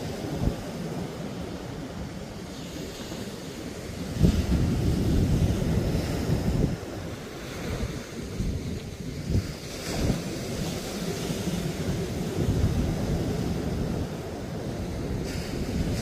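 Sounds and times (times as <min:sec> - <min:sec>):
ocean surf breaking: 0:00.0 - 0:16.0
wind buffeting microphone: 0:00.0 - 0:16.0.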